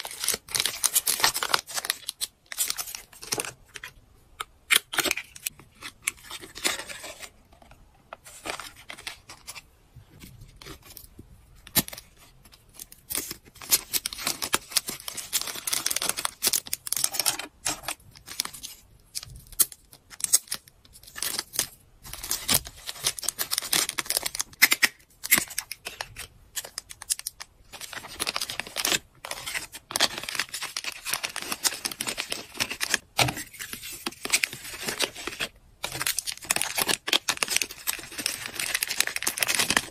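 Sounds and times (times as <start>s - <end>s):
plastic packaging crinkling: 12.7s - 39.9s.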